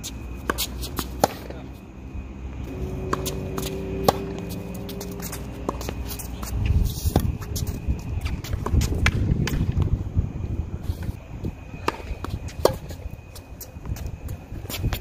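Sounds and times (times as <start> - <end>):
footsteps and shoe scuffs on court: 0.0 - 1.9, 2.6 - 9.2, 11.8 - 15.0
racket hitting ball: 0.4 - 1.6, 2.7 - 9.7, 11.8 - 13.0
low rumble: 2.2 - 13.3.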